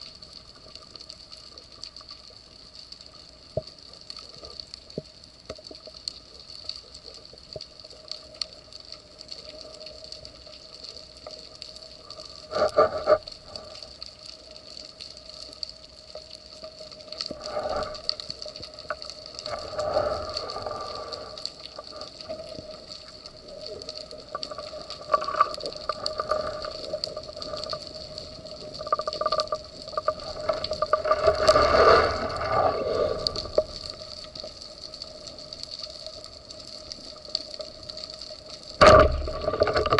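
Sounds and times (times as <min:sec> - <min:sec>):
faint underwater hum: 0:00.0 - 0:39.9
muffled underwater swishing: 0:24.5 - 0:34.1.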